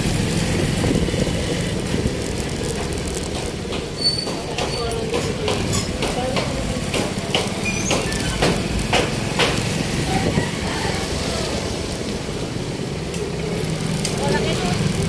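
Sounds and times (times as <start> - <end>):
vehicle engine rumble: 0.0 - 15.0
sharp clicks and knocks: 1.2 - 10.0.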